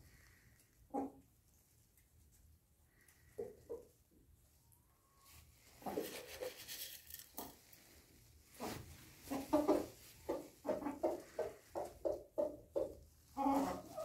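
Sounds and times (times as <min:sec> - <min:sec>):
chickens clucking: 0:00.8 - 0:01.4, 0:03.3 - 0:04.1, 0:05.7 - 0:06.7, 0:08.6 - 0:14.0.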